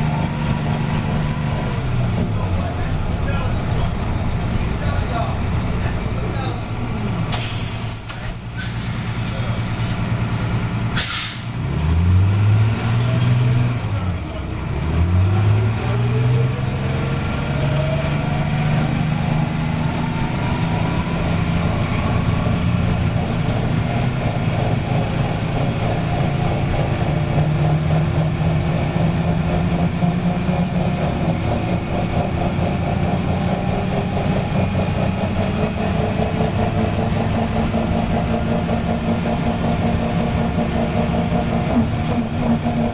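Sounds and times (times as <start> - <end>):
bus diesel engine revving: 0.0 - 42.9
air hiss: 11.0 - 11.5.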